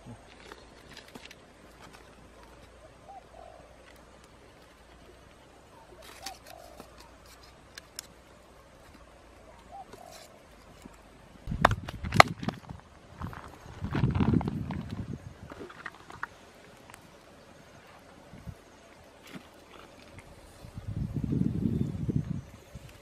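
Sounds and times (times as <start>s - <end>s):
dry twigs cracking in fire: 0.2s - 2.8s, 6.0s - 9.1s.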